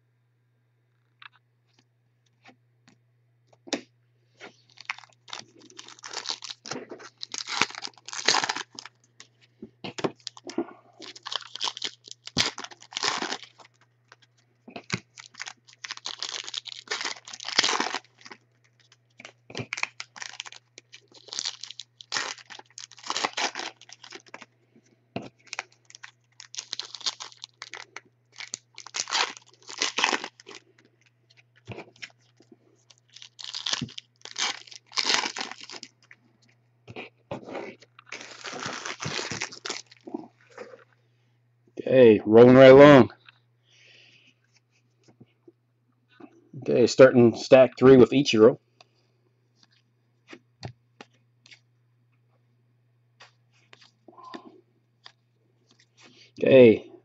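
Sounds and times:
foil wrapper crinkling and tearing: 0:04.5 - 0:09.3, 0:10.0 - 0:24.5, 0:25.2 - 0:36.2, 0:37.6 - 0:40.8.

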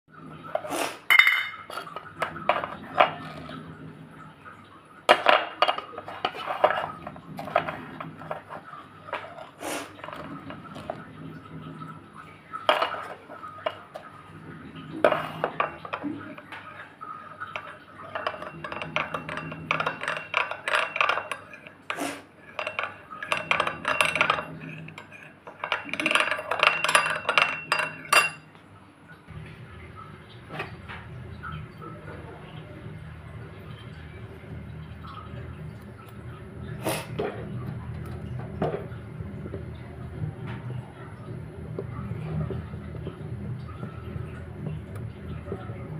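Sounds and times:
spoon stirring liquid: 0:00.5 - 0:03.7, 0:05.1 - 0:11.5, 0:12.5 - 0:14.2, 0:14.8 - 0:28.6
spoon clinking on glass bowl: 0:01.1 - 0:02.0, 0:17.5 - 0:21.8, 0:22.5 - 0:28.5.

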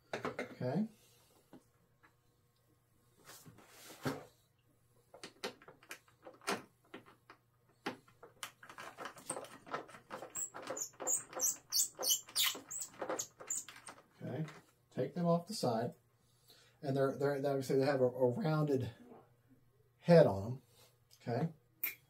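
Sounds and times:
high squeaks: 0:10.2 - 0:14.0.

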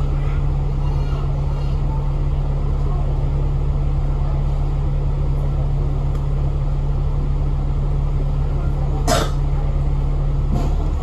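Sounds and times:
bus engine and road noise: 0:00.0 - 0:11.0
constant low hum: 0:00.0 - 0:11.0.

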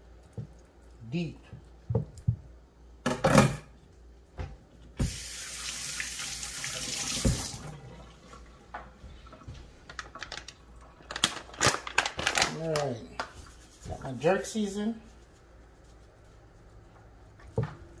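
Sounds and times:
faucet running into metal sink: 0:05.0 - 0:08.4.

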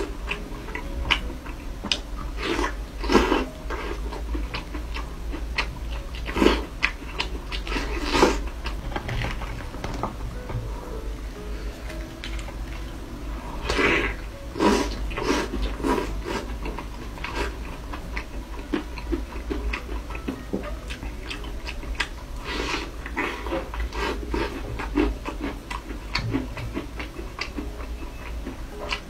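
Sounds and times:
chewing with wet mouth smacks: 0:14.8 - 0:29.0.

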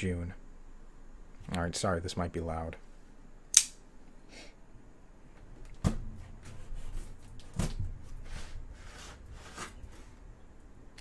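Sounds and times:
cardboard scraping and rustling: 0:06.0 - 0:10.2.

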